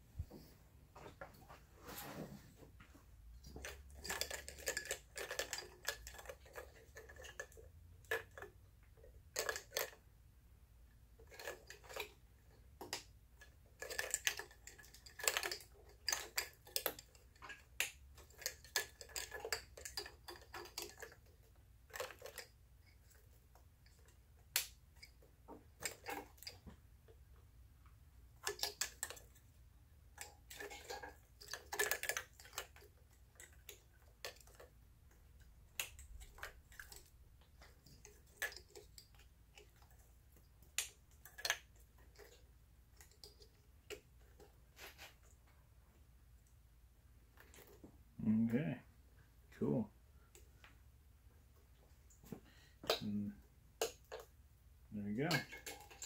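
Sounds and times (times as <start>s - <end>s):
wires rustling: 0.0s - 10.1s, 11.1s - 56.0s
plastic connectors clicking: 30.2s - 40.0s.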